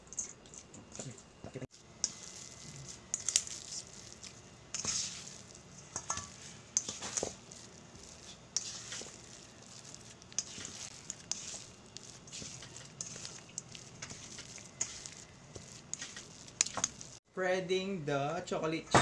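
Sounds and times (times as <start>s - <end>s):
spatula scraping dough: 2.0s - 17.2s.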